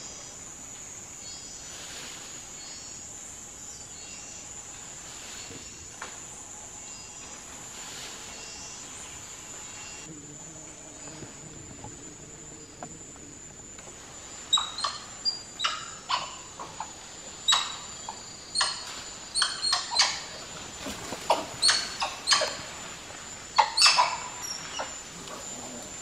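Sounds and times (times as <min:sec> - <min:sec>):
high insect buzz: 0:00.0 - 0:26.0
monkeys barking calls: 0:14.5 - 0:22.9, 0:23.6 - 0:26.0.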